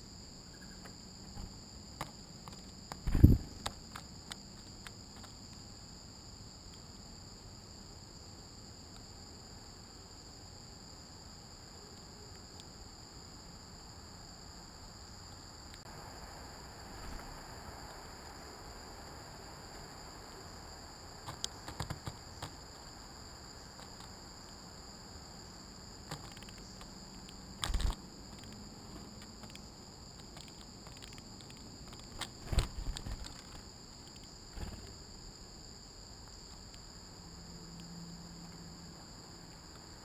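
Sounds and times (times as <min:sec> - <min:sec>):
high insect chorus: 0:00.0 - 0:40.0
birds knocking and scuffling: 0:27.6 - 0:29.6, 0:30.3 - 0:34.9.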